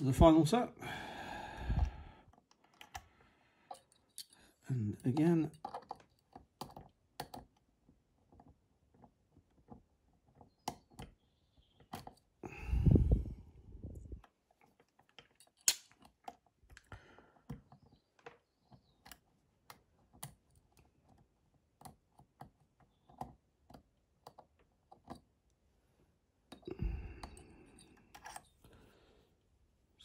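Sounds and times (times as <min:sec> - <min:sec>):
metallic clicks of lock picking: 0:02.4 - 0:03.1, 0:03.7 - 0:07.5, 0:14.8 - 0:16.9
scraping and handling noise: 0:03.7 - 0:07.6, 0:14.2 - 0:25.3, 0:26.5 - 0:29.0.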